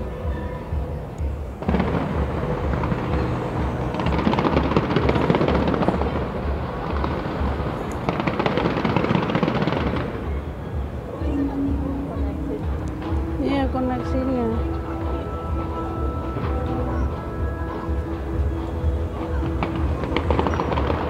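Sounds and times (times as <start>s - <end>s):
fireworks crackling bangs: 1.6s - 10.9s, 19.1s - 21.0s
music with steady bass beat: 10.8s - 21.0s.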